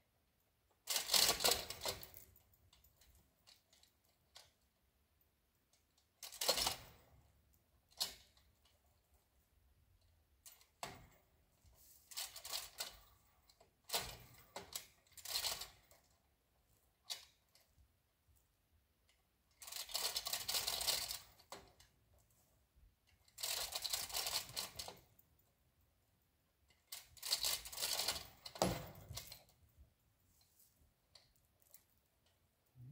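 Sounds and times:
hand chain rattling: 26.7 - 29.7.

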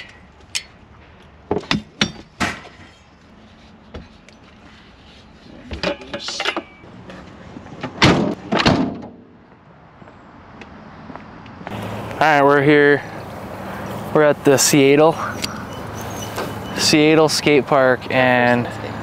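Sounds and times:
bike knocking and clanking: 1.5 - 3.2, 5.6 - 6.8.

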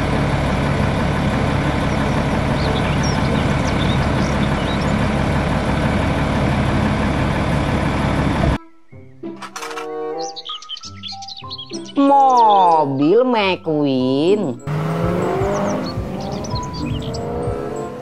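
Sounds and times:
truck diesel engine running: 0.0 - 8.6, 14.6 - 18.0.

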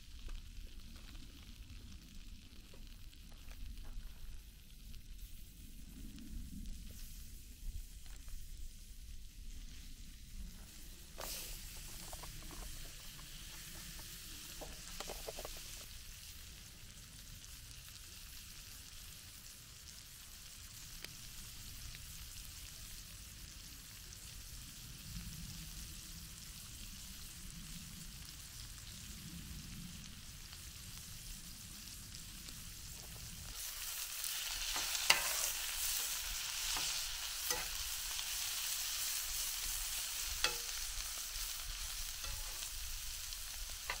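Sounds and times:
sausages sizzling in a frying pan: 0.0 - 44.0
metal spatula scraping a pan: 33.6 - 42.8.

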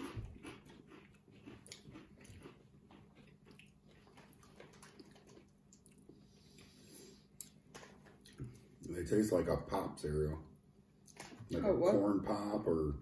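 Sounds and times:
chewing crunchy snacks: 0.0 - 8.8.

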